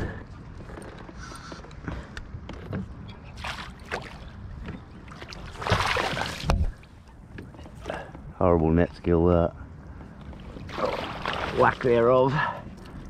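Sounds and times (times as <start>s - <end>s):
fish splashing in water: 5.2s - 6.5s.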